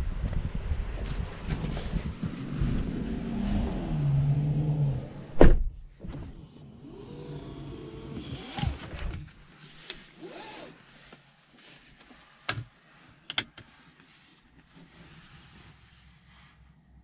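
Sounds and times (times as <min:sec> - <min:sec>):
car door shutting: 0:05.1 - 0:06.4
quiet motor whir: 0:06.6 - 0:09.3.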